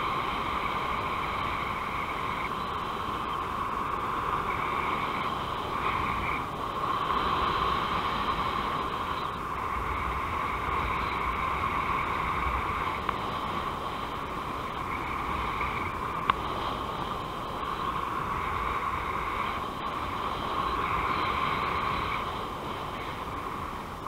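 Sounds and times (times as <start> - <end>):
wind rushing over microphone: 0.0 - 24.0
faint clicks: 16.2 - 16.5.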